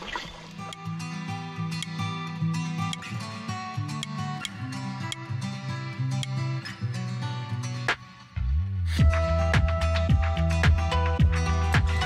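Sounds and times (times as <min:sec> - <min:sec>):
sharp tick on the beat: 0:02.9 - 0:03.1, 0:04.0 - 0:05.3
sustained instrumental music: 0:08.4 - 0:12.0.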